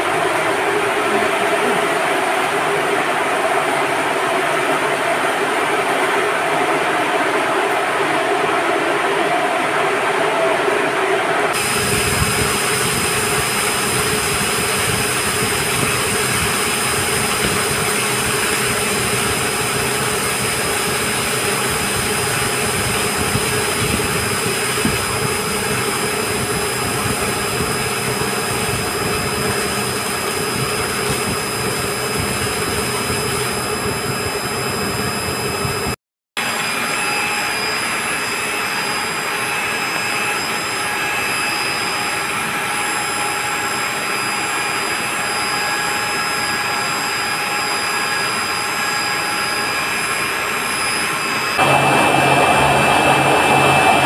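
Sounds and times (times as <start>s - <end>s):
steady whining tones: 0.0s - 54.0s
pumps and motors running: 11.5s - 35.9s
water jetting from pipes: 11.6s - 34.6s.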